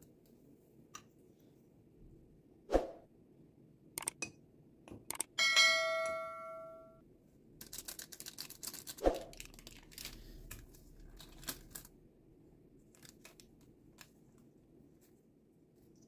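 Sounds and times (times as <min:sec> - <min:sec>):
paper crinkling: 0:07.6 - 0:12.0, 0:12.8 - 0:16.0.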